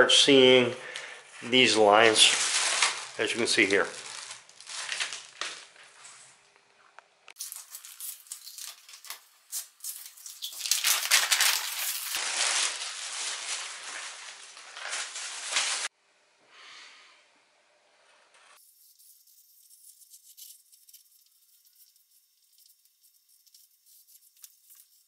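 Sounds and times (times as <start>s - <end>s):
paper rustling and crinkling: 1.5s - 6.2s, 7.4s - 15.9s.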